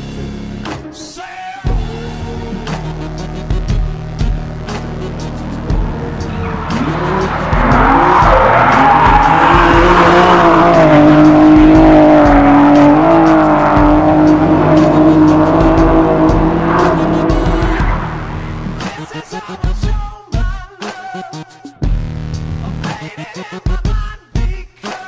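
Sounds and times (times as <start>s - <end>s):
car engine revving high: 4.2s - 19.4s
tyres squealing: 4.8s - 19.5s.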